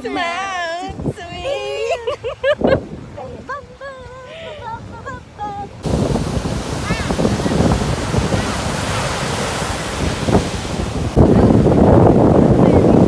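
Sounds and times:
wind buffeting microphone: 0:00.0 - 0:13.0
sea waves breaking on beach: 0:02.6 - 0:13.0.

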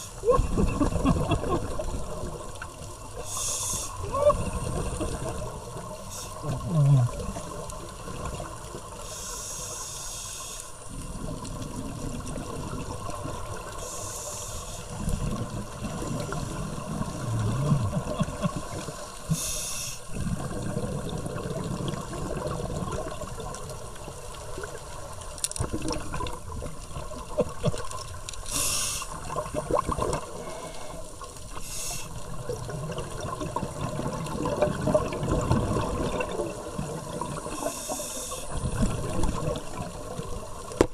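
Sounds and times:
regulator inhale hiss: 0:00.0 - 0:00.2, 0:03.2 - 0:04.0, 0:06.0 - 0:06.4, 0:09.0 - 0:10.9, 0:13.8 - 0:15.0, 0:19.0 - 0:20.2, 0:28.5 - 0:29.2, 0:30.3 - 0:32.2, 0:37.4 - 0:38.7
exhaled bubbles rushing: 0:00.2 - 0:02.7, 0:04.0 - 0:08.8, 0:14.9 - 0:19.2, 0:20.1 - 0:25.0, 0:25.6 - 0:28.0, 0:29.1 - 0:30.5, 0:32.2 - 0:37.6, 0:38.4 - 0:40.8.

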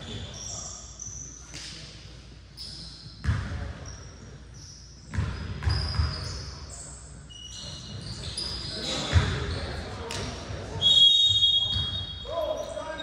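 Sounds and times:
sneaker squeaks: 0:00.0 - 0:13.0
basketball bouncing on wooden floor: 0:05.1 - 0:06.1.

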